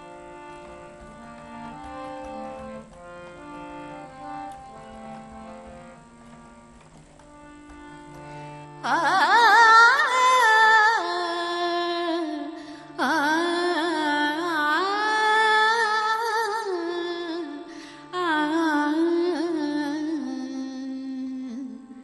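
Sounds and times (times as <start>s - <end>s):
faint steady accompaniment: 0.0s - 22.0s
woman singing with vibrato: 8.8s - 22.0s.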